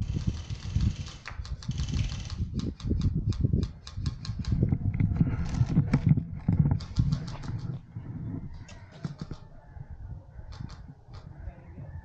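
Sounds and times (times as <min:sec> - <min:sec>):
rapid sharp clicks: 0:00.0 - 0:04.6, 0:06.7 - 0:07.7.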